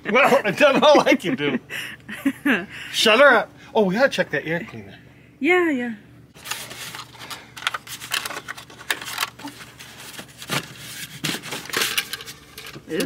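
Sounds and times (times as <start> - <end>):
plastic cover clicks and scrapes: 6.4 - 13.0.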